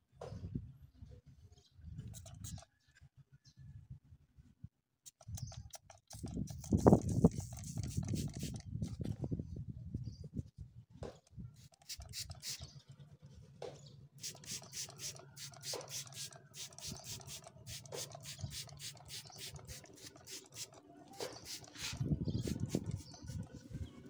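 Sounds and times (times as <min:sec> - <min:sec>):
spray bottle squirting: 0:02.0 - 0:02.6, 0:05.1 - 0:09.0, 0:11.6 - 0:12.8, 0:14.2 - 0:23.6.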